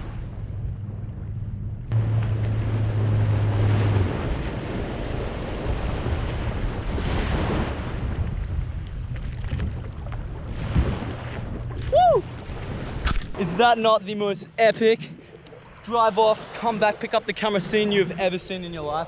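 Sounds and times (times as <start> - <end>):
outboard motor running: 0.0 - 7.0
waves washing: 0.0 - 19.0
wind buffeting microphone: 0.0 - 19.0.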